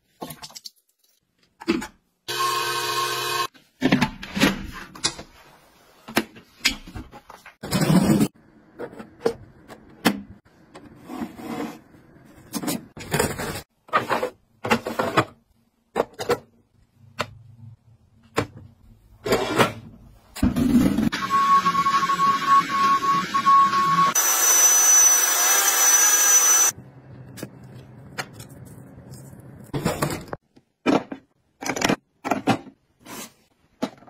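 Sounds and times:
plastic gadgets clicking and knocking: 30.1 - 32.9.

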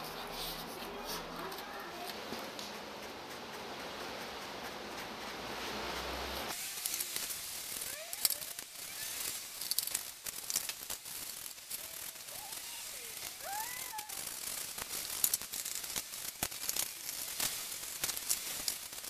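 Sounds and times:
brush scraping and dabbing: 0.0 - 19.0
steady hiss: 0.0 - 19.0
small clicks: 6.8 - 19.0.

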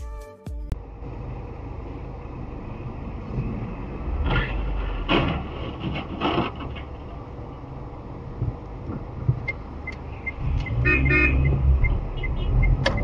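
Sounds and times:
car road and engine rumble: 0.7 - 13.0
metal body panels crunching: 4.5 - 7.4.

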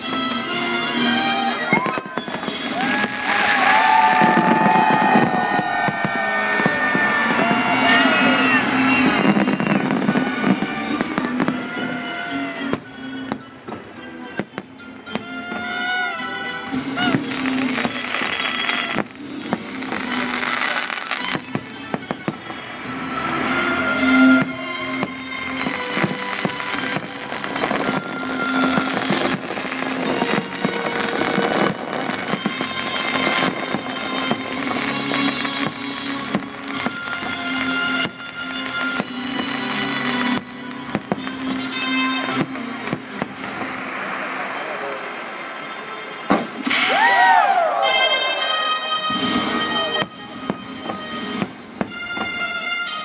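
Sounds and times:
fireworks cracking and banging: 0.0 - 53.0
music soundtrack: 0.0 - 53.0.

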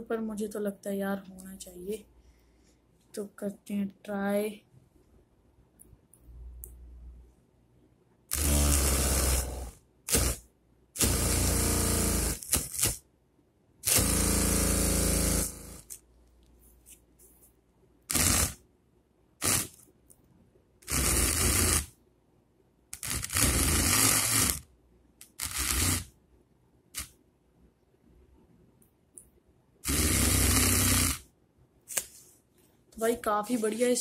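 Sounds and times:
small drill motor running: 8.3 - 10.4, 11.0 - 13.0, 13.8 - 15.9, 18.1 - 18.6, 19.4 - 19.8, 20.8 - 21.9, 23.0 - 24.6, 25.2 - 26.1, 29.8 - 31.2.

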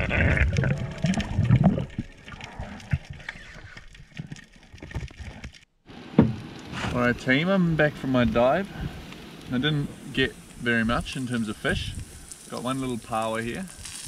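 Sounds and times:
muffled underwater gurgling: 0.0 - 3.8.

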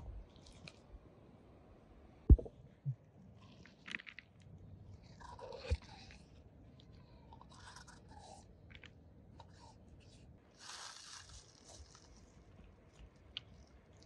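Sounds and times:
dull thumps: 2.3 - 2.5
small knock: 2.3 - 2.5
crisp crackly rustles: 10.5 - 14.0.

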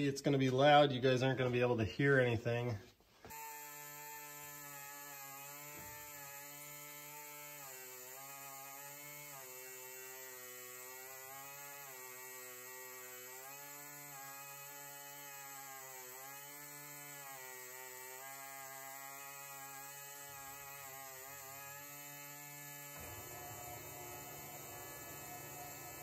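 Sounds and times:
air die grinder whining: 7.4 - 26.0.

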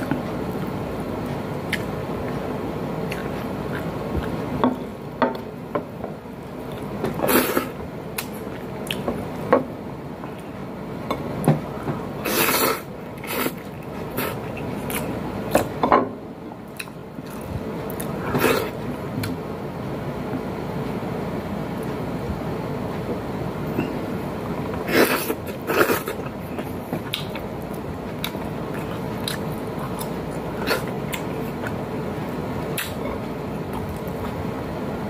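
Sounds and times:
man chewing with wet mouth smacks: 1.3 - 4.5, 8.2 - 9.2, 25.2 - 31.8, 32.6 - 34.4.

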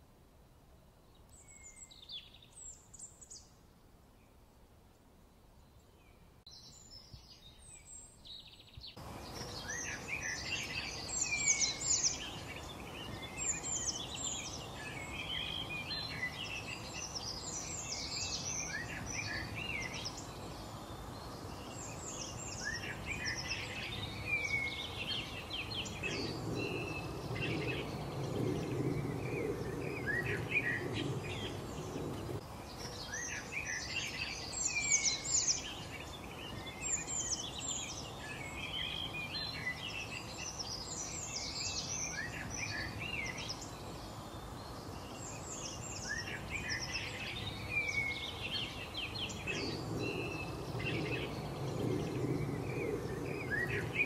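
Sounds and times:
steady background hiss: 0.0 - 54.0
small birds chirping: 1.0 - 4.4, 5.5 - 54.0
low rumble: 25.9 - 32.4, 49.4 - 54.0.

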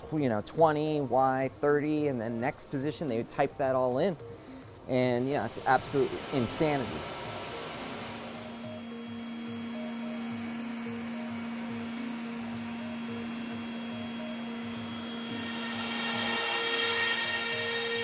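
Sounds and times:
electric spindle humming: 4.2 - 18.0.

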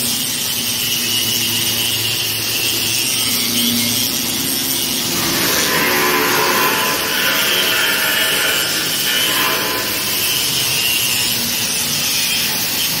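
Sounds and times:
angle grinder grinding steel: 4.7 - 11.6.

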